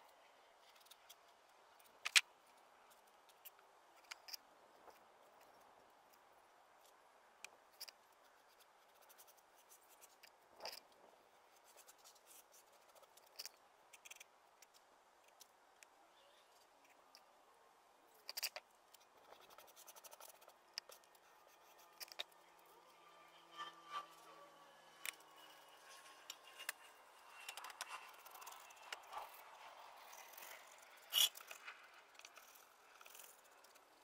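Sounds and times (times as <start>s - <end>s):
scraper scratching grout off stone: 30.3s - 31.5s.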